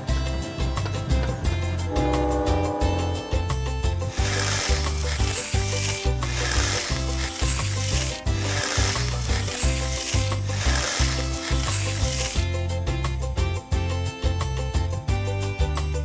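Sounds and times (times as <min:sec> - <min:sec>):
music with repeating bass line: 0:01.4 - 0:04.1
hissing scraping noise: 0:04.1 - 0:12.4.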